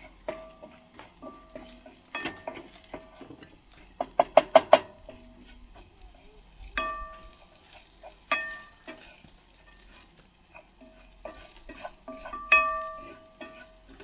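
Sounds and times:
wooden spatula knocking metal pan: 0:04.0 - 0:05.4.

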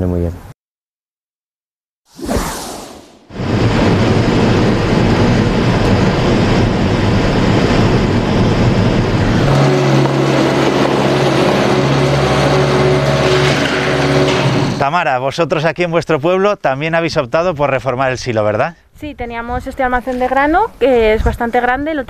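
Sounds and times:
steady engine hum: 0:03.4 - 0:14.8
car driving by: 0:08.8 - 0:14.8.

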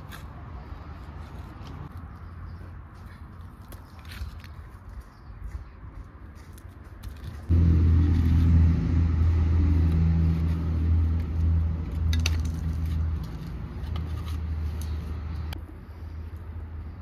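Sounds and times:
engine humming: 0:07.4 - 0:15.7.

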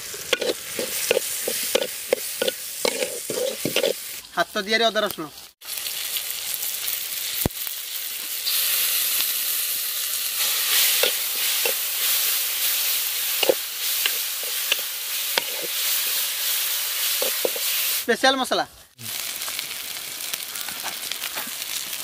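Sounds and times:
food sizzling in hot oil: 0:00.0 - 0:22.0
utensil scraping and knocking pan: 0:00.2 - 0:04.0.

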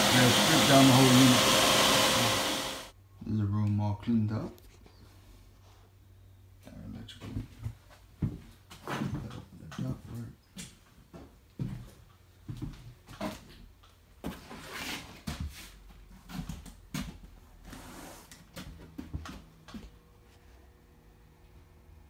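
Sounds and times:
soft knocks and scuffs: 0:07.2 - 0:13.5.

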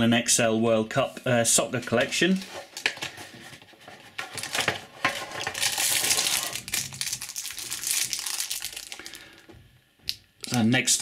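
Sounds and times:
plastic wrapper crinkling: 0:04.1 - 0:09.5.

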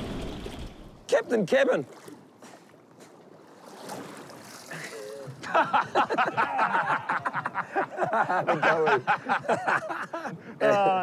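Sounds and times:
water noise: 0:00.0 - 0:10.9
wind: 0:00.0 - 0:11.0
men laughing loudly: 0:05.4 - 0:11.0.

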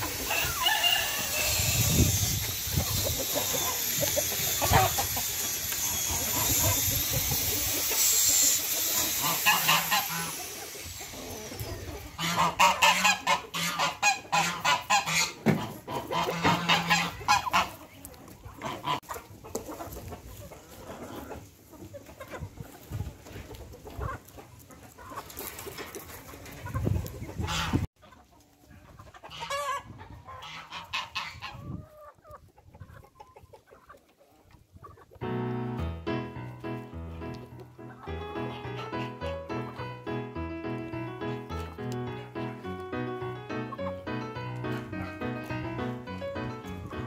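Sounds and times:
steady hiss: 0:00.0 - 0:12.1
ducks and chickens calling: 0:00.0 - 0:47.0.

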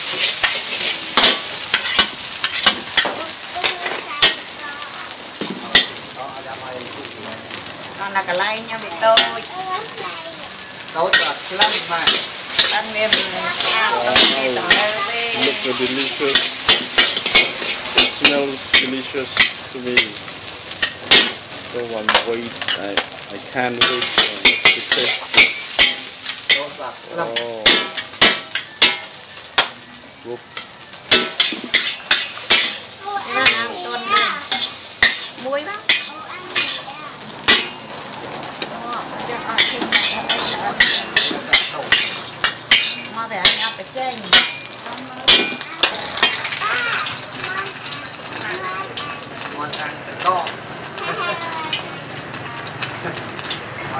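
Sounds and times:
metal ladles scraping a wok: 0:00.0 - 0:04.6, 0:08.2 - 0:09.5, 0:10.6 - 0:29.8, 0:30.6 - 0:37.9, 0:39.3 - 0:48.4
frying sizzle: 0:00.0 - 0:53.9
metal spatula clanking on pan: 0:00.2 - 0:04.5, 0:05.4 - 0:06.0, 0:09.0 - 0:09.5, 0:11.0 - 0:15.6, 0:16.2 - 0:20.2, 0:20.8 - 0:21.4, 0:22.0 - 0:23.1, 0:23.8 - 0:29.8, 0:30.6 - 0:37.8, 0:39.5 - 0:46.6.

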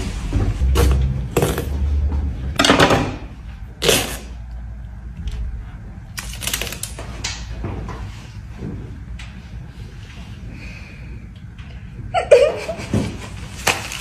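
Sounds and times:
paper rustling: 0:13.3 - 0:14.0.

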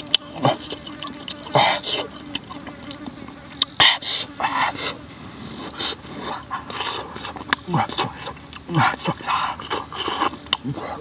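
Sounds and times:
high insect drone: 0:00.0 - 0:11.0
person eating with mouth noises: 0:00.0 - 0:11.0.

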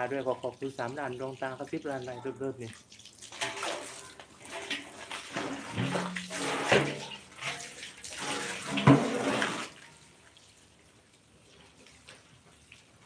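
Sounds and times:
water splashing in basin: 0:00.0 - 0:10.8
faint trickle from hose: 0:00.0 - 0:13.0
metal basin knocking: 0:04.6 - 0:07.8, 0:08.4 - 0:09.4.

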